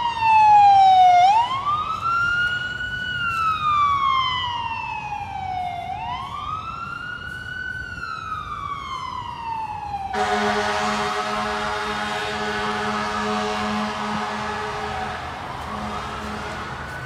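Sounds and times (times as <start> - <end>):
ambulance siren wailing: 0.0 - 17.0
deep horn blast: 10.2 - 17.0.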